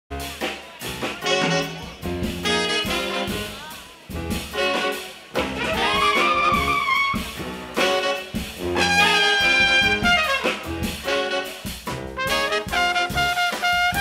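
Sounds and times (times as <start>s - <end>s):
jazz big band horn section: 0.1s - 14.0s
rhythm section: 0.1s - 14.0s.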